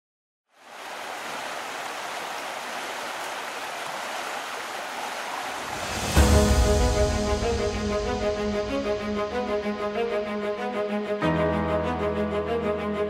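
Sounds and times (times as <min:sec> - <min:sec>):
water rushing over rapids: 0:00.5 - 0:07.5
music with heavy low hit: 0:06.1 - 0:10.2.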